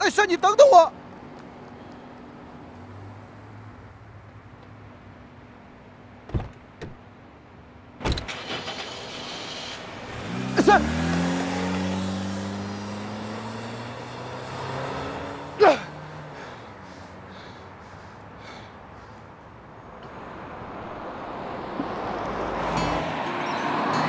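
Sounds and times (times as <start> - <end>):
man shouting: 0.0 - 0.9, 10.6 - 11.0, 15.6 - 16.0
car door slamming: 6.2 - 7.0, 8.0 - 8.4
car engine revving and pulling away: 8.2 - 19.2, 19.8 - 24.0.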